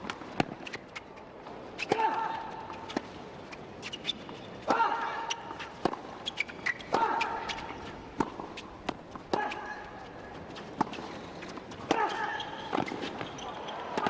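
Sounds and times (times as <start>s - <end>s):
tennis ball strikes and bounces: 0.0s - 0.8s, 5.5s - 13.3s.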